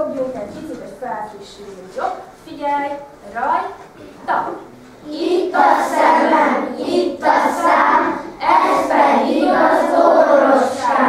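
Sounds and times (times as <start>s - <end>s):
children singing in unison: 5.1s - 11.0s.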